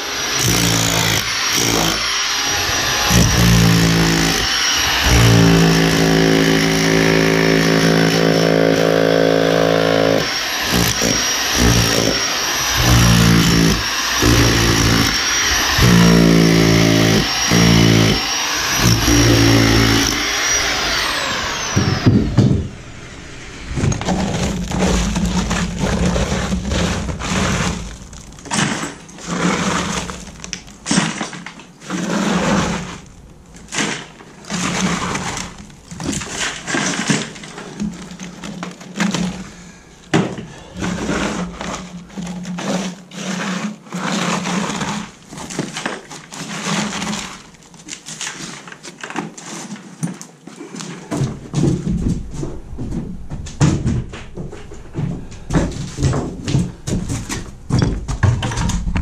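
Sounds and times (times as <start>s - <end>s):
rotary hammer chipping concrete: 0.0s - 22.6s, 24.4s - 39.6s
dense low rattling: 10.8s - 28.5s, 51.8s - 59.0s.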